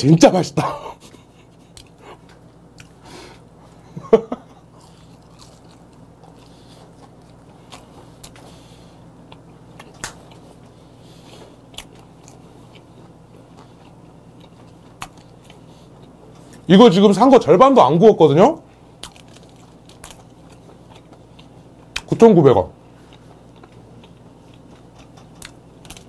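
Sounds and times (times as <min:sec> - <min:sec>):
man chewing close up: 0:01.6 - 0:03.0, 0:04.6 - 0:16.7, 0:18.9 - 0:22.2, 0:22.9 - 0:26.0.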